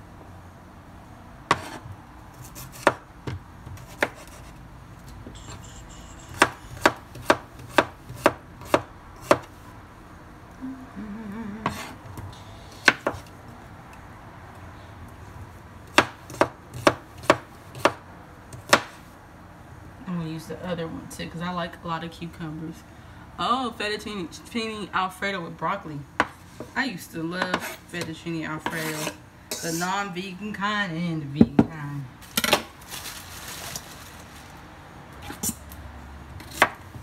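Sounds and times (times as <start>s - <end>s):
knife chopping on wooden board: 1.5s - 4.4s, 6.3s - 9.5s, 12.8s - 13.2s, 15.9s - 18.0s, 18.6s - 19.0s.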